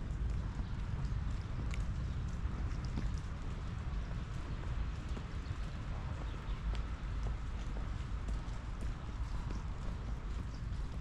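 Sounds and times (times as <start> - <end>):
footsteps on wet path: 0.0 - 11.0
steady low rumble: 0.0 - 11.0.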